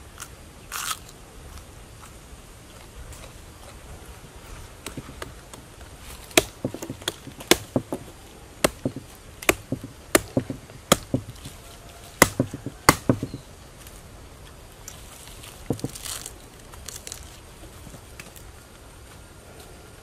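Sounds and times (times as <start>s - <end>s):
knife chopping into wood: 4.8s - 5.7s, 6.3s - 11.6s, 12.2s - 13.4s, 15.7s - 16.2s.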